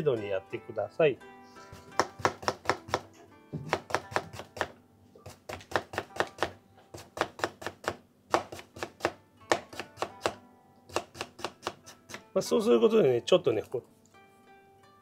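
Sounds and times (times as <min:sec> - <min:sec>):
knife tapping on cutting board: 0:01.9 - 0:12.2.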